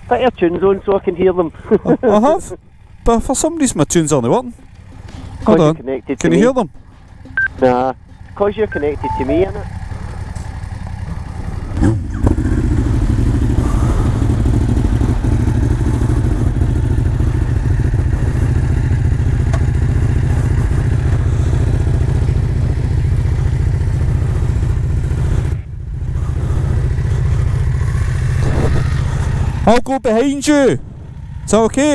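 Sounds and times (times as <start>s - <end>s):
motorcycle engine running: 0.0s - 31.9s.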